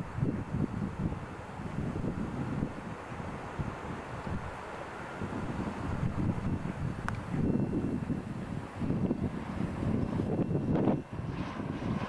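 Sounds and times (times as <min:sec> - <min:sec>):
faint distant freight train: 0:00.0 - 0:12.0
gusty wind buffeting microphone: 0:00.0 - 0:12.0.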